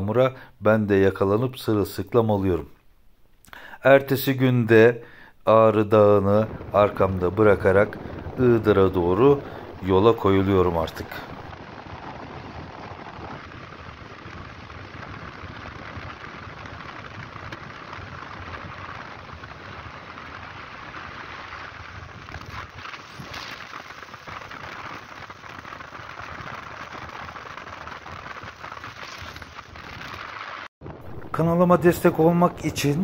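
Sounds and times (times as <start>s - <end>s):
wind rushing: 6.0s - 33.0s.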